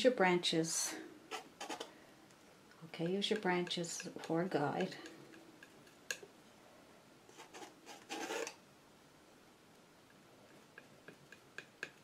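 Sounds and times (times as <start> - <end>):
palette knife scraping paint: 1.3 - 1.9, 7.3 - 8.6.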